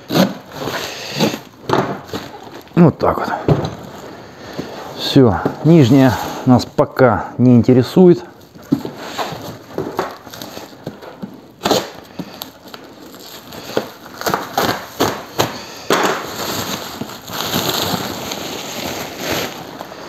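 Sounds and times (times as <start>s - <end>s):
packing tape being torn off: 0.0s - 2.8s, 8.4s - 20.0s
plastic wrap crackling and rustling: 0.0s - 6.9s, 7.8s - 20.0s.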